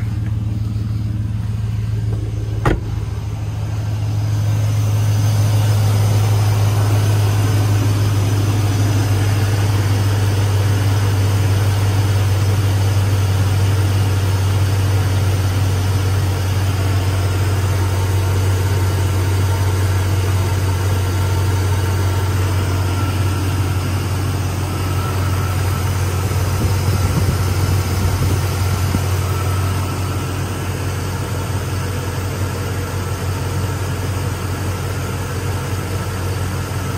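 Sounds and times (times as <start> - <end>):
car engine idling: 0.0 - 36.9.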